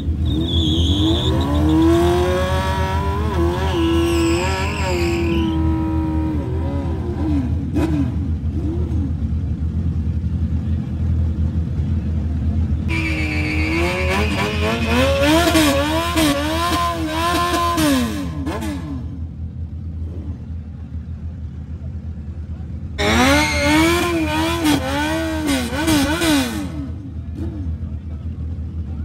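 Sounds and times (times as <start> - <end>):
engine revving in blips: 0.0 - 9.2, 12.9 - 19.2, 23.0 - 27.7
engine rumbling: 0.0 - 29.0.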